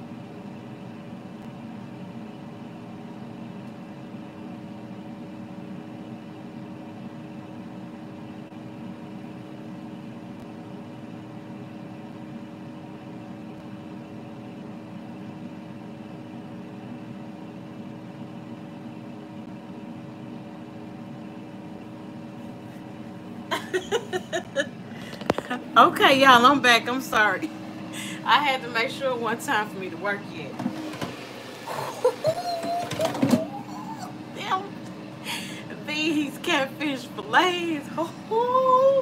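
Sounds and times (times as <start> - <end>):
low two-tone hum: 0.0 - 31.0, 31.6 - 39.0
air fryer fan whirring: 0.0 - 39.0.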